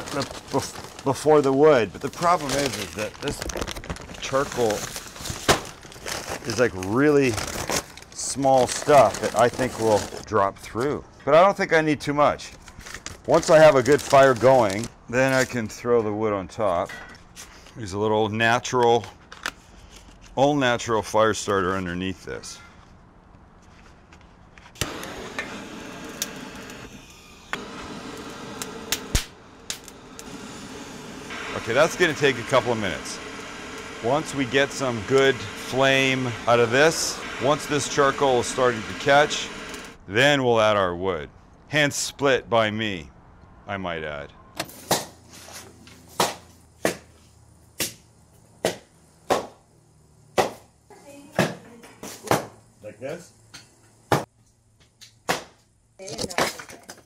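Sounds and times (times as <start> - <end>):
torch igniter click: 24.8 - 39.9
gas torch hissing: 24.8 - 40.0
axe chopping firewood: 46.2 - 47.1, 48.6 - 49.6, 50.4 - 50.6, 55.2 - 55.6.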